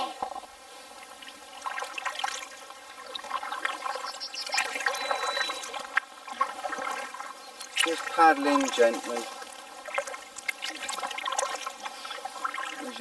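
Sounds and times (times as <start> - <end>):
paddle splashing water: 0.0 - 13.0.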